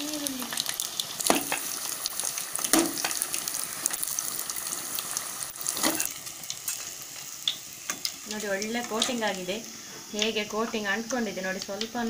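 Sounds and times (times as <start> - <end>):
deep-frying sizzle: 0.0 - 12.0.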